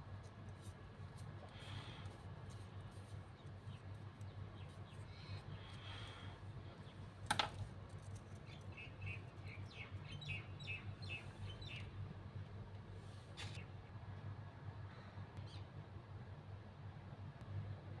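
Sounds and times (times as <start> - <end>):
steady low hum: 0.0 - 18.0
small birds chirping: 0.6 - 12.1, 14.9 - 15.8.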